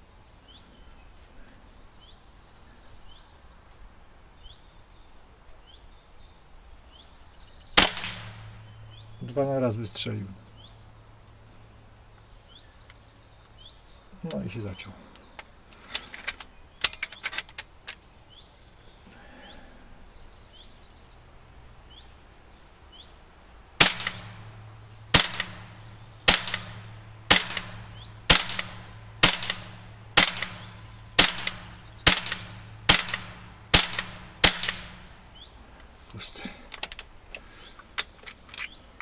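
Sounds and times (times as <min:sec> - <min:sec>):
air rifle shots cracking: 0:07.8 - 0:08.6, 0:23.8 - 0:35.2
rifle action clicks: 0:23.8 - 0:24.3, 0:25.2 - 0:35.0.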